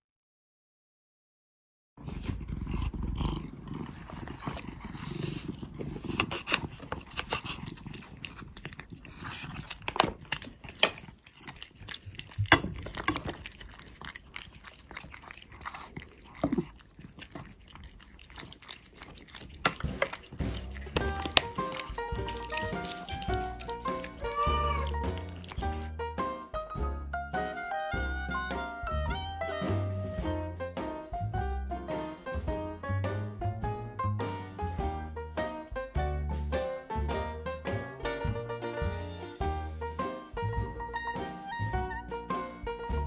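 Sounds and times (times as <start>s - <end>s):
low cat sounds: 2.0s - 25.9s
cats chewing and lapping food: 2.0s - 26.0s
music: 19.8s - 43.0s.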